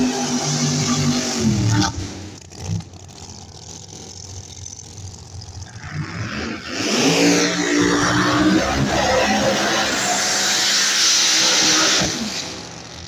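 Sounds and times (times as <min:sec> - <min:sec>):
car engine at full throttle: 0:00.0 - 0:13.0
car engine revving: 0:00.0 - 0:13.0.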